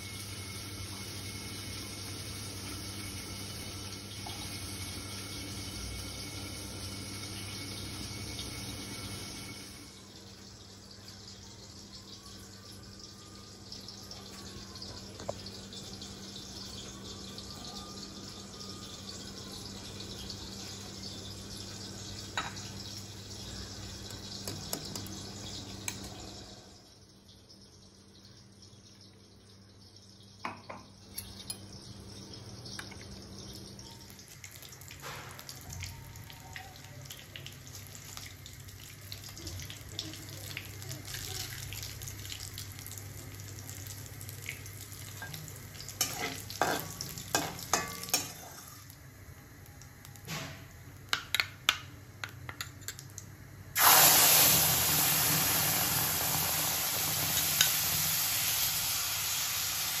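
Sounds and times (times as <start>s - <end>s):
loud steady sizzle: 0.0s - 60.0s
spices crackling in hot oil: 27.2s - 60.0s.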